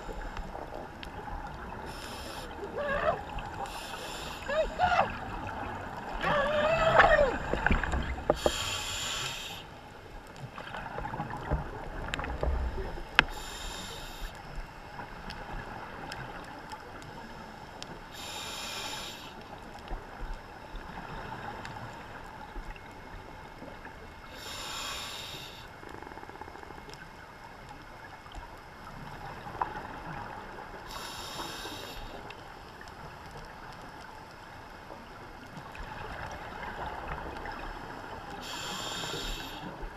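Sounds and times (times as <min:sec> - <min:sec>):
low rumble of water and bubbles: 0:00.0 - 0:39.9
underwater gurgling: 0:00.0 - 0:39.9
diver breathing through regulator: 0:01.9 - 0:04.8, 0:06.2 - 0:09.8, 0:13.3 - 0:14.4, 0:18.1 - 0:19.4, 0:24.3 - 0:25.7, 0:30.9 - 0:32.2, 0:38.4 - 0:39.8.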